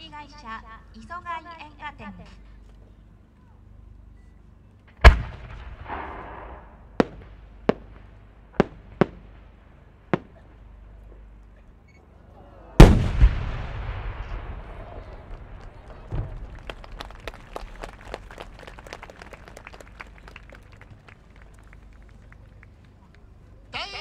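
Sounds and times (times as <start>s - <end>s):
sharp cracks: 4.9s - 10.7s, 12.8s - 23.2s
firework launch boom: 5.0s - 9.5s, 12.8s - 17.9s
firework burst with rumble: 5.0s - 10.5s, 12.8s - 18.5s.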